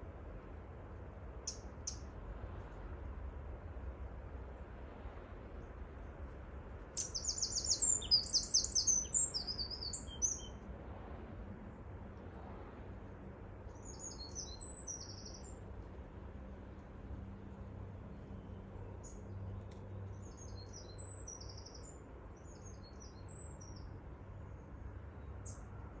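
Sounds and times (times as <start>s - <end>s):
low steady rumble: 0.0s - 26.0s
songbird trilling: 7.0s - 10.6s, 13.8s - 15.5s.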